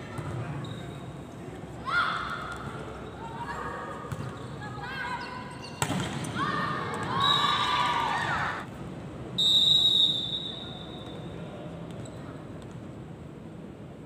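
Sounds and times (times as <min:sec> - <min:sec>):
players shouting: 0:06.4 - 0:08.7
referee whistle blast: 0:09.4 - 0:11.2.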